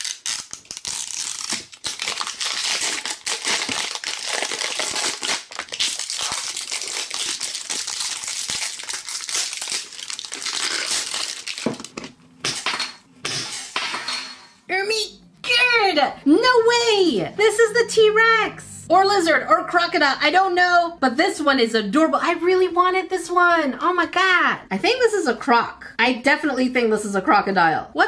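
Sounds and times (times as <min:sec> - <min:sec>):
plastic film crinkling: 0:00.0 - 0:12.2.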